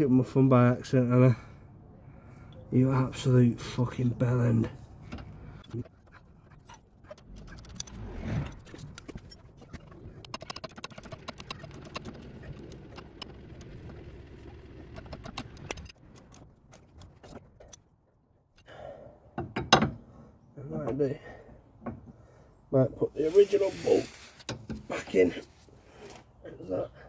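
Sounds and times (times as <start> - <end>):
tools clicking and clinking: 14.9 - 17.8.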